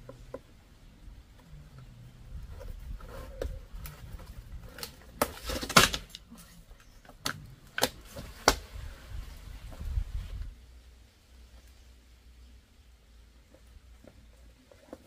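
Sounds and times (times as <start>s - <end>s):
stalk snapping and crackling: 2.5s - 8.8s.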